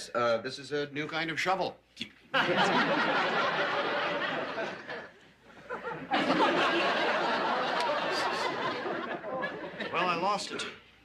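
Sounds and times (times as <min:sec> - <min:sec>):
audience laughing: 0:02.4 - 0:10.4.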